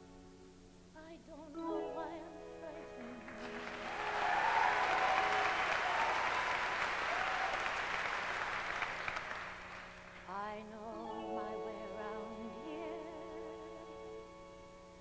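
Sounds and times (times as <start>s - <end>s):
orchestra sustained chords: 1.6s - 7.0s, 9.3s - 15.0s
audience applauding: 3.2s - 10.3s.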